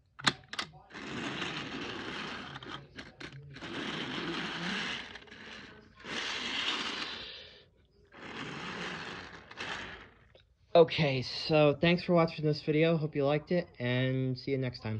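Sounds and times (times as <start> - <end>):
toy train wheels rolling and scraping: 0.2 - 7.5, 8.1 - 10.3.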